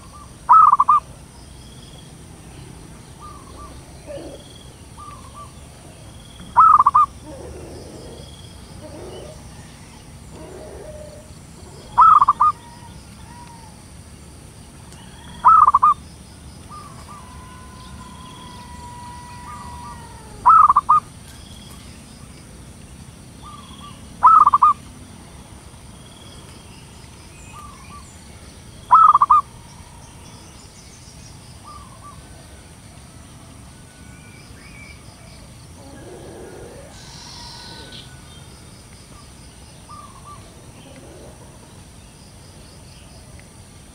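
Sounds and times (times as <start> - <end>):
dove calling: 0.0 - 1.2, 2.6 - 13.9, 15.0 - 16.0, 16.6 - 21.8, 23.4 - 24.9, 27.3 - 28.2, 28.8 - 30.6, 31.6 - 32.5, 35.8 - 38.4, 39.9 - 41.8.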